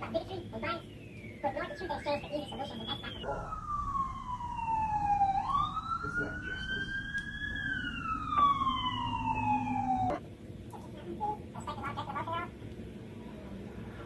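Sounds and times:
emergency vehicle siren wailing: 0:00.6 - 0:10.2.

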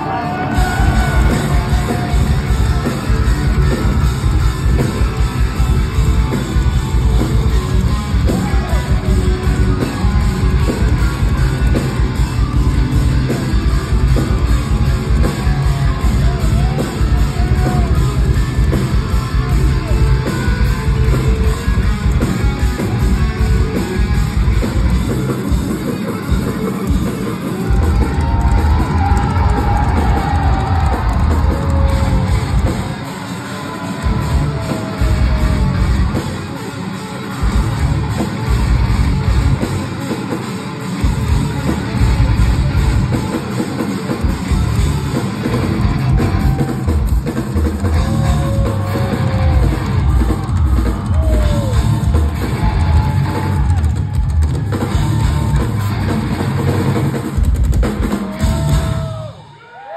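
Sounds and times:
heavy metal band playing live: 0:00.0 - 0:59.9
fast kick drums: 0:27.7 - 0:33.0.

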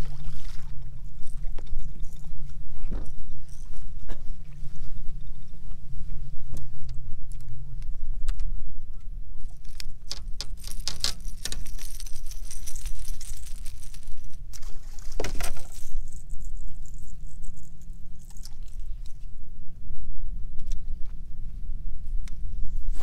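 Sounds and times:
low rumble: 0:00.0 - 0:23.0
pliers and hooks rattling: 0:09.5 - 0:19.2.

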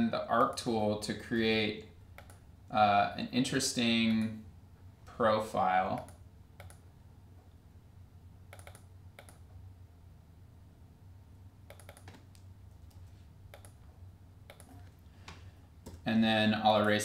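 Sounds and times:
low steady hum: 0:00.0 - 0:17.0
computer mouse clicks: 0:02.2 - 0:02.4, 0:06.0 - 0:06.8, 0:08.5 - 0:09.5, 0:11.7 - 0:13.8, 0:14.5 - 0:15.0.

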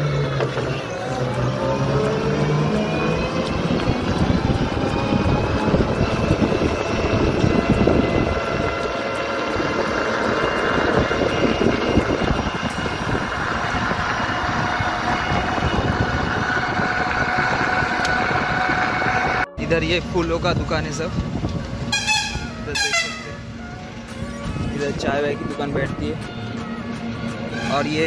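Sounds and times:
wind and road noise: 0:00.0 - 0:28.0
electric motor whine: 0:00.2 - 0:19.5.

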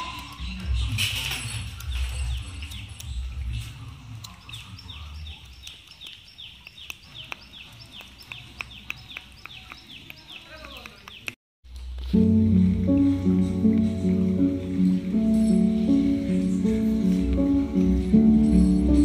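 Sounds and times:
animal chirping: 0:01.8 - 0:11.4
sharp ticks: 0:05.4 - 0:11.4.

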